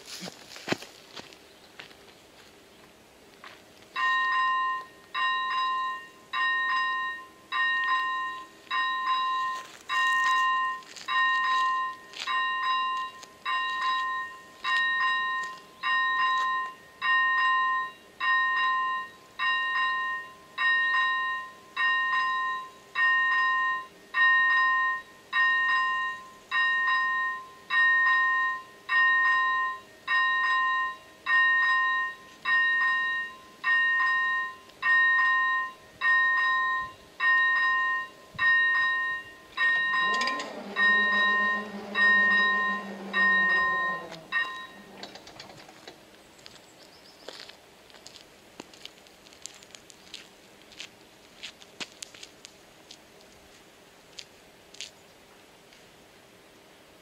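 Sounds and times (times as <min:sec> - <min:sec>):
level crossing bell dinging: 0:04.0 - 0:45.4.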